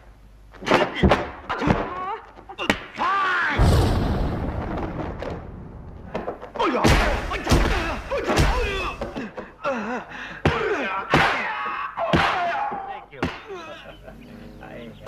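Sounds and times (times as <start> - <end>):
fighters yelling and grunting: 0.8 - 3.7, 6.6 - 14.0
punch and kick impact thuds: 6.7 - 9.2.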